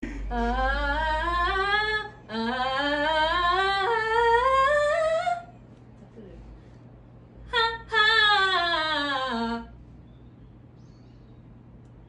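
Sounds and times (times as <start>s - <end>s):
woman singing rising scales: 0.2s - 5.5s.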